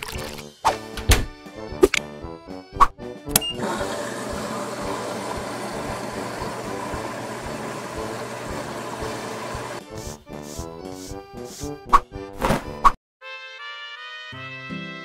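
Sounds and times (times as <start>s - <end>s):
washing machine whirring: 3.4s - 9.8s.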